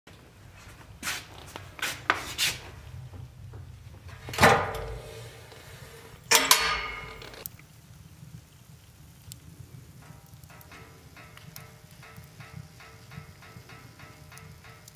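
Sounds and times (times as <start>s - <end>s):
metal stove door clanking: 3.5s - 7.5s, 10.0s - 14.9s.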